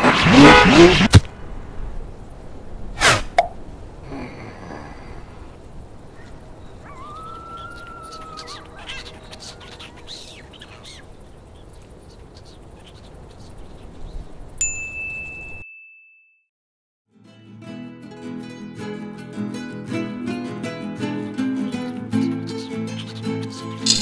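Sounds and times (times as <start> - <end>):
bright ding: 14.6 - 16.4.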